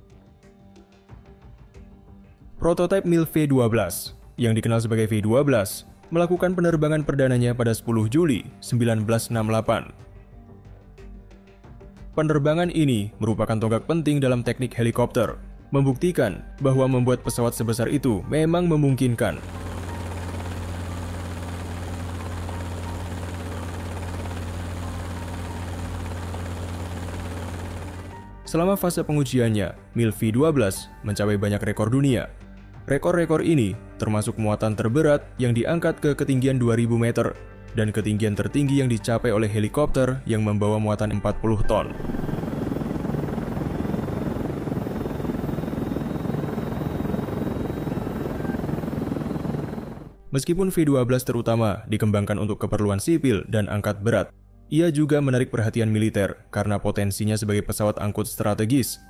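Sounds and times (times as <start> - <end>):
helicopter rotor drone: 19.2 - 28.4, 41.8 - 50.2.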